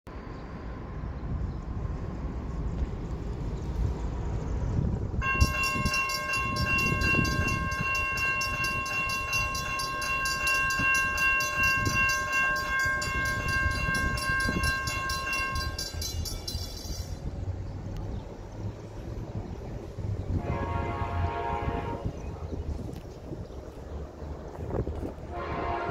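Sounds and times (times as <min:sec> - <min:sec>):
level-crossing warning bell ringing: 0:05.2 - 0:17.3.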